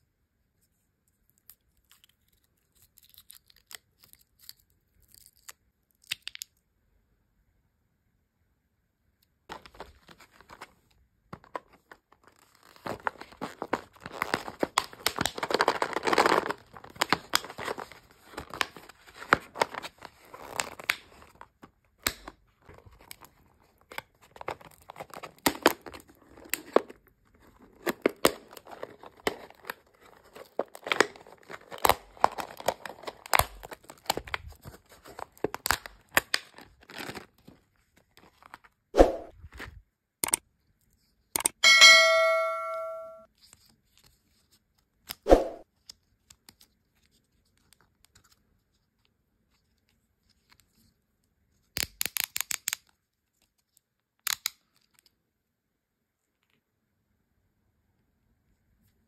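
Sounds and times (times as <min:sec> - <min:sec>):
plastic packaging crinkling: 0:09.5 - 0:21.7, 0:22.5 - 0:38.7.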